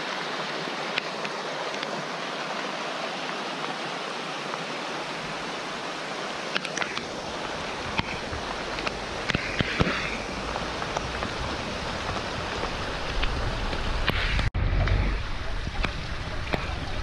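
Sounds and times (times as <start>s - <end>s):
flood water rushing: 0.0s - 17.0s
raindrops ticking on camera: 6.4s - 17.0s
low rumble: 10.3s - 17.0s.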